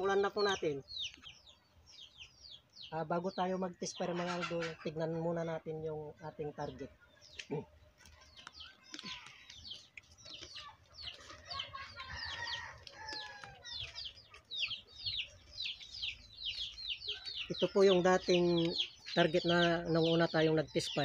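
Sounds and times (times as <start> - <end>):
birds chirping: 0.0 - 21.0
lower bird calls: 6.6 - 21.0.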